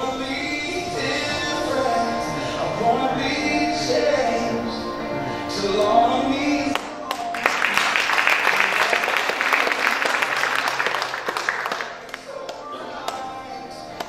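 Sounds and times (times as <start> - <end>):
song with singing: 0.0 - 14.0
congregation applauding: 6.7 - 12.7.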